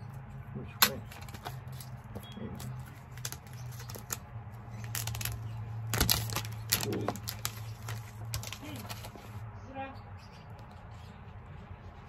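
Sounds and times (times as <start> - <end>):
plastic shrink-wrap crinkling: 1.0 - 9.4.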